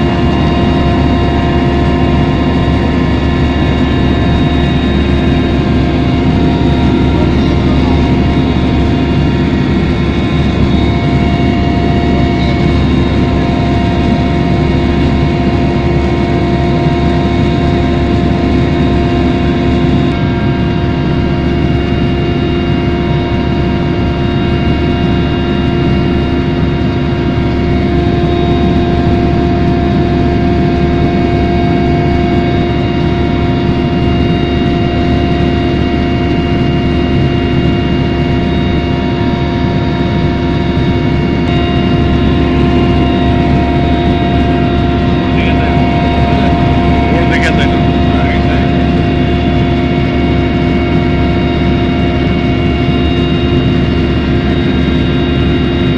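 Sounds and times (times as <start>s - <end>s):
helicopter engine and rotors drone: 0.0s - 55.9s
constant high tones: 25.9s - 55.9s.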